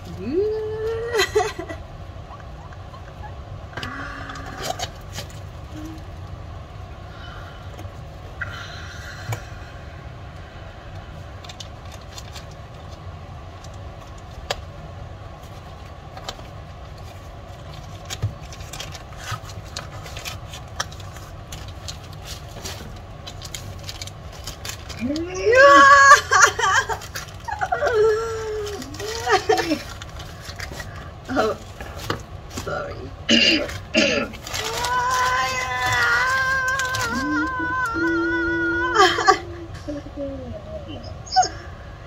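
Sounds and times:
steady low hum: 0:00.0 - 0:42.0
packaging clicks and crinkles: 0:11.4 - 0:14.8, 0:15.4 - 0:25.3, 0:26.4 - 0:32.7, 0:33.7 - 0:38.2.

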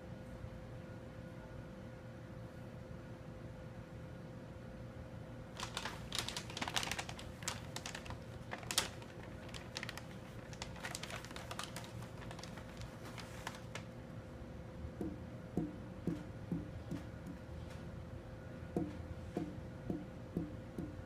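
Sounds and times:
paper bag crinkling and rustling: 0:05.5 - 0:14.0.

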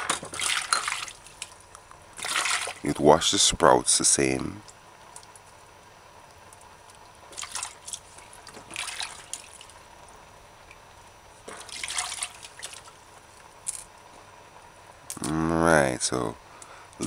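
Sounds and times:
water splashing in metal bowl: 0:00.3 - 0:01.6, 0:02.2 - 0:02.9, 0:07.3 - 0:09.8, 0:11.5 - 0:13.0.

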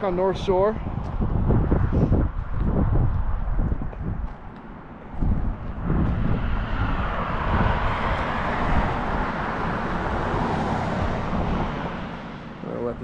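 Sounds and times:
wind rumbling on microphone: 0:00.0 - 0:13.0
car driving past: 0:05.2 - 0:12.8.

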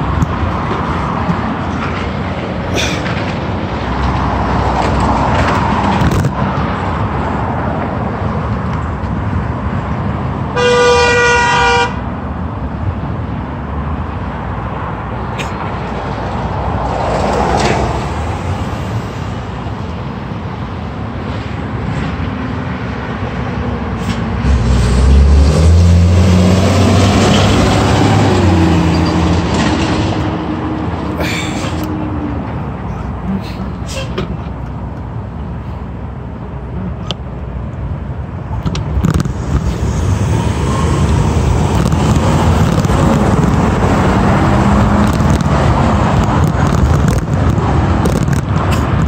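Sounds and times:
heavy truck engine rumbling: 0:00.0 - 0:49.0
road traffic passing: 0:00.0 - 0:49.0
vehicle horn honking: 0:10.6 - 0:12.0.

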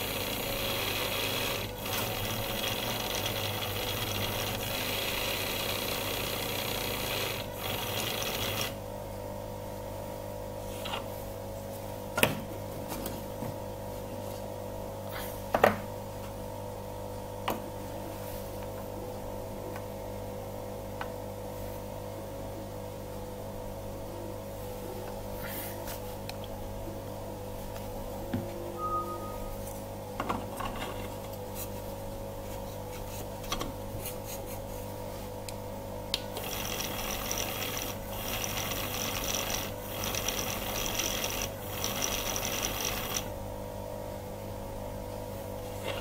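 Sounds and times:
small motor whirring: 0:00.0 - 0:08.8, 0:36.4 - 0:43.3
steady hum: 0:00.0 - 0:46.0.

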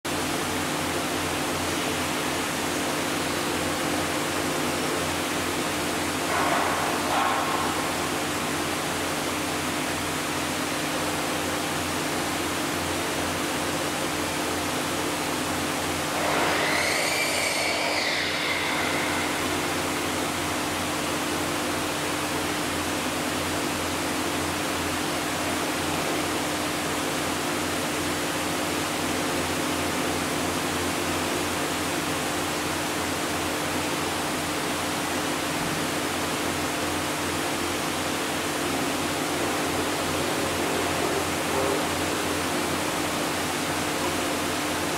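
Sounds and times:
aquarium pumps hissing and humming: 0:00.1 - 0:44.9
brief high squeal: 0:16.2 - 0:19.7.

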